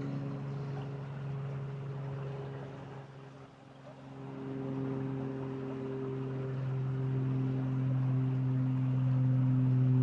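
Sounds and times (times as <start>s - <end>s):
low motor hum: 0.0s - 10.0s.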